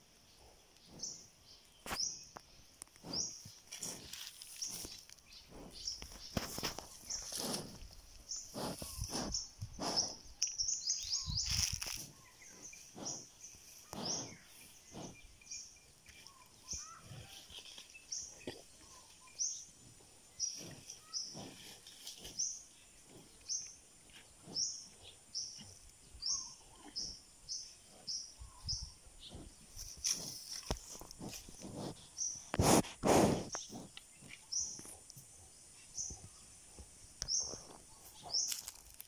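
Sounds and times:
puffs and rustles on microphone: 3.0 - 10.4, 11.0 - 15.2, 27.9 - 35.0.

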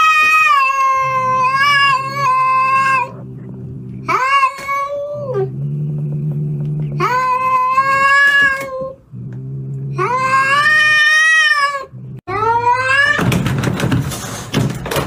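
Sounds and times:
cat yowling: 0.0 - 3.2
cat growling: 0.2 - 13.1.

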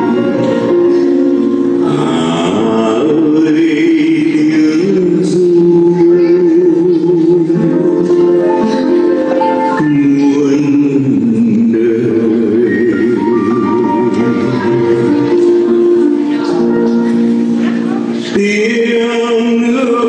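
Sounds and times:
voices singing with vibrato: 0.0 - 8.9
musical accompaniment: 0.0 - 20.0.

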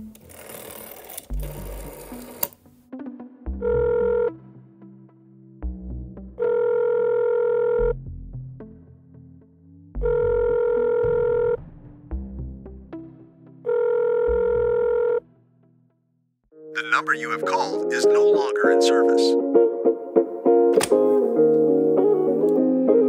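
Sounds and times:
rotary dial whirring and clicking: 0.0 - 2.6
soft background music: 0.0 - 23.0
telephone ringback tone: 3.6 - 4.4, 6.4 - 7.9, 10.1 - 11.6, 13.7 - 15.2.

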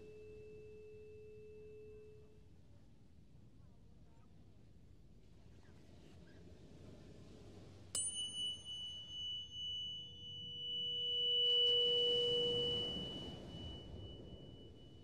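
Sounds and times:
tuning fork ringing: 0.0 - 2.5, 8.0 - 15.0.

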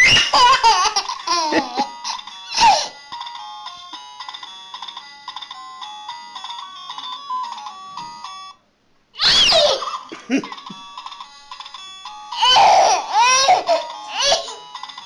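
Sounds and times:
baby squealing: 0.0 - 0.8, 9.2 - 10.0, 12.4 - 14.6
electronic toy beeping melody: 1.8 - 8.6, 10.4 - 15.0.

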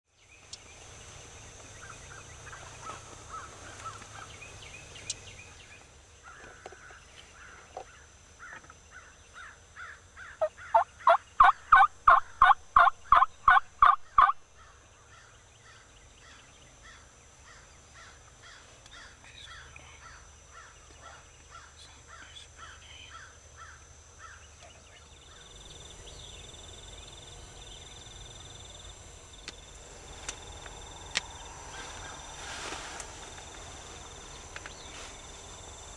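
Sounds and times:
birdsong: 0.1 - 35.9
turkey yelping: 10.4 - 14.4.

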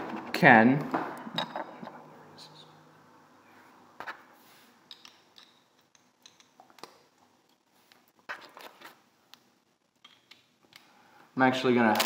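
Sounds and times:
clicks and taps of small objects: 4.9 - 8.5, 9.3 - 10.9.

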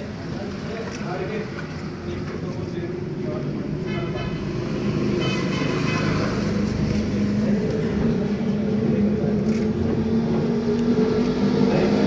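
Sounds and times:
road vehicle engine hum: 0.0 - 12.0.

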